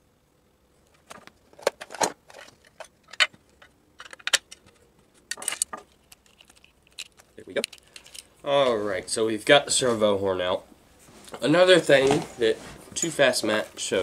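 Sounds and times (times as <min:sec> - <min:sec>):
small parts clicking and rattling: 0:00.9 - 0:08.4.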